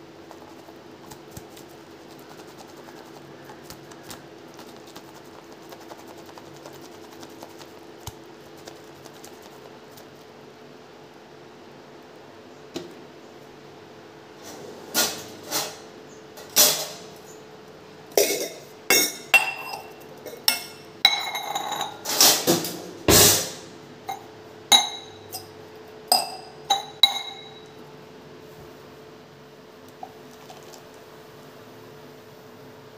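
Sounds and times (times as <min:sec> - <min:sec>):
steel vessels clinking: 0:26.1 - 0:27.7.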